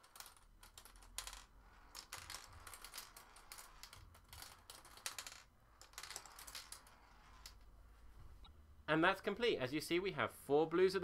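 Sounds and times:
marbles clicking through plastic parts: 0:00.0 - 0:07.7.

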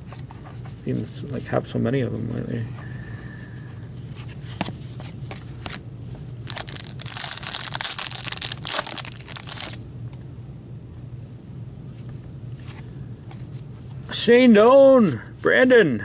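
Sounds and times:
foil wrapper tearing and crinkling: 0:06.4 - 0:09.8.

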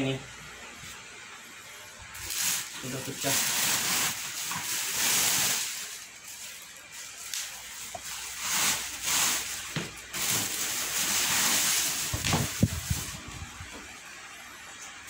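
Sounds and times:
plastic and bubble wrap crinkling: 0:02.1 - 0:13.6.

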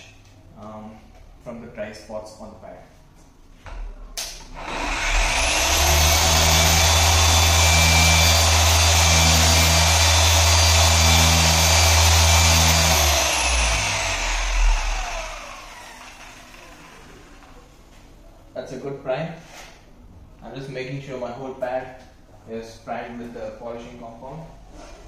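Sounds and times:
electric polisher whining: 0:04.6 - 0:17.5.

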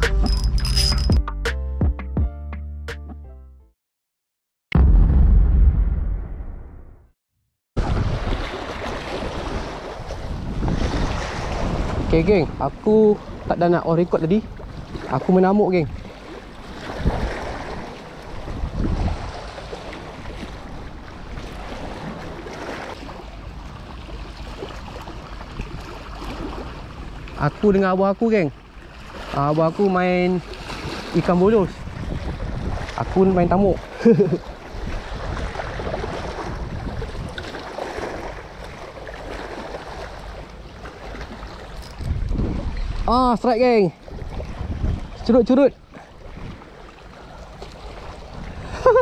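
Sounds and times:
wind on microphone: 0:07.8 - 0:08.5, 0:09.1 - 0:13.6, 0:15.9 - 0:22.2, 0:30.8 - 0:33.9, 0:34.7 - 0:37.5, 0:41.8 - 0:43.4, 0:44.0 - 0:45.3, 0:48.2 - 0:49.0
waves lapping on rocks: 0:13.1 - 0:49.0.

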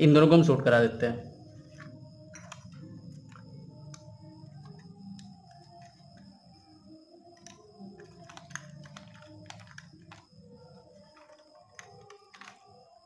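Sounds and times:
screwdriver clicks and scrapes: 0:01.6 - 0:06.2, 0:07.4 - 0:10.3.

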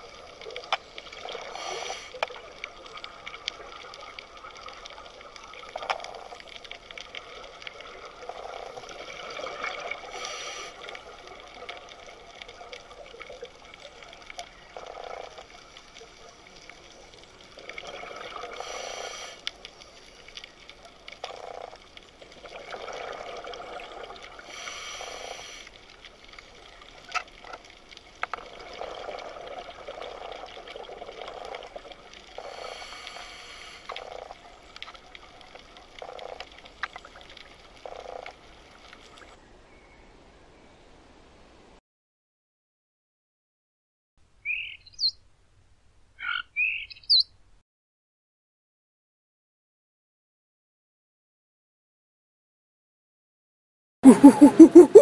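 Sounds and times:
water bubbling: 0:00.0 - 0:18.7, 0:54.0 - 0:55.0
underwater water noise: 0:00.0 - 0:39.4, 0:54.0 - 0:55.0.

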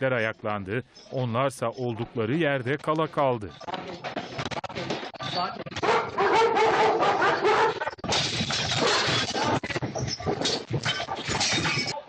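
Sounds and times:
household objects rattling and crashing: 0:03.6 - 0:12.0.

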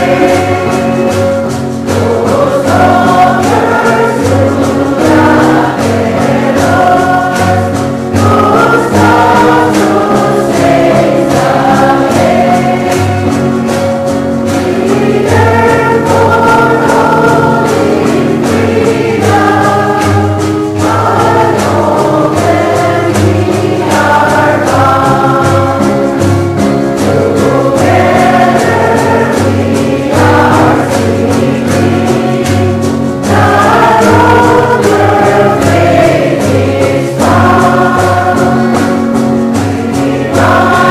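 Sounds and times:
choir singing gospel song: 0:00.0 - 0:40.9.

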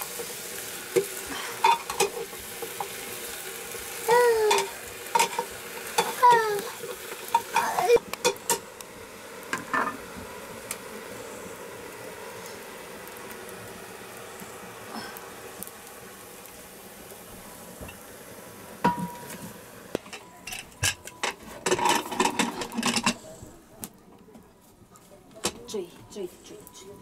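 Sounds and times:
metal pots clanking: 0:01.0 - 0:03.0, 0:04.4 - 0:08.7, 0:09.6 - 0:10.0, 0:18.8 - 0:19.4, 0:20.0 - 0:23.2.

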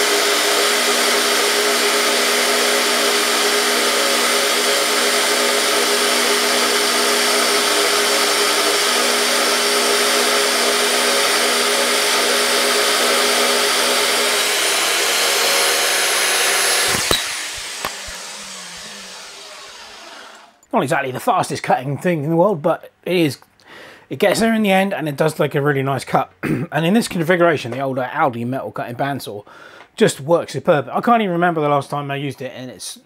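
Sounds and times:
bandsaw cutting metal: 0:00.0 - 0:20.6.

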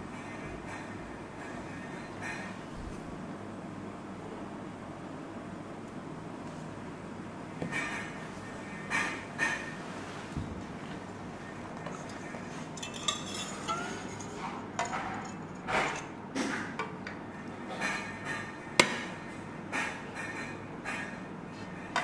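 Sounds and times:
dishes and utensils clinking: 0:11.8 - 0:19.0.

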